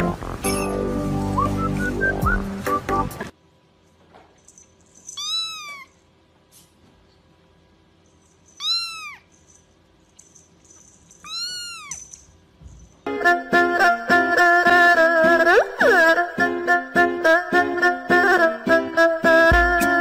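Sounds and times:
kitten mewing: 8.6s - 9.3s, 11.2s - 12.0s.

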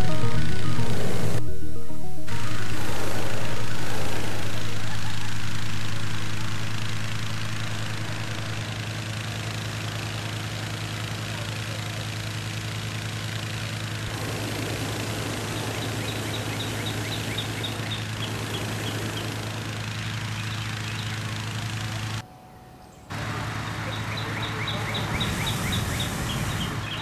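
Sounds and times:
motor humming: 0.0s - 22.2s
songbird chirping: 15.6s - 19.3s, 22.2s - 27.0s.

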